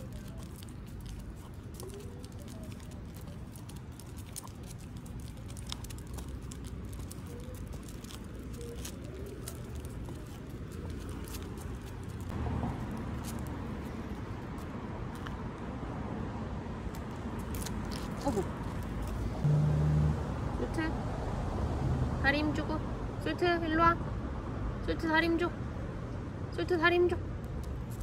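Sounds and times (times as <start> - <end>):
dog claws clicking on brick: 0.0 - 12.3
road traffic rumble: 0.0 - 28.0.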